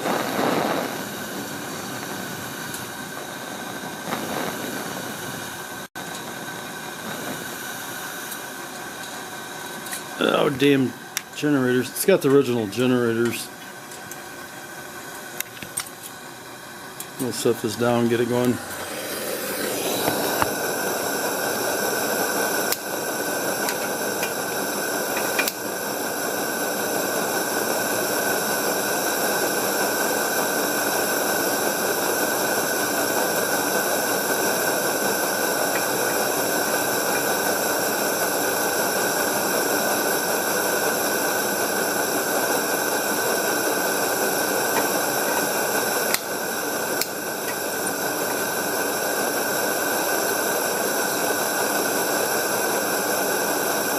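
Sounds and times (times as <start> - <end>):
gas lantern hissing: 0.0 - 53.9.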